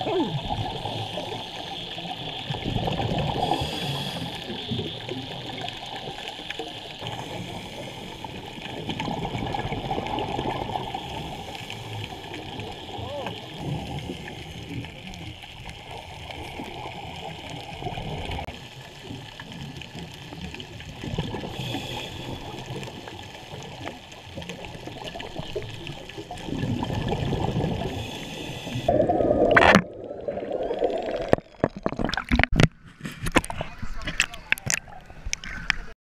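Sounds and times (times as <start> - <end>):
gurgling bubbles: 0.0 - 32.7
muffled underwater noise: 0.0 - 35.9
sharp knocks and splashes: 31.2 - 35.9.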